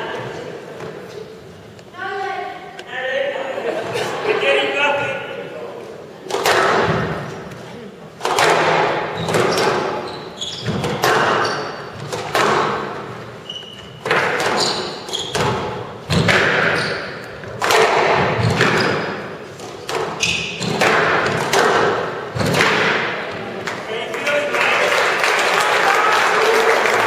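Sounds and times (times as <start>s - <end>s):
squash ball hitting walls: 6.2s - 7.5s, 8.2s - 13.3s, 13.9s - 23.8s
shoes squeaking on court: 9.0s - 17.6s, 18.4s - 21.4s.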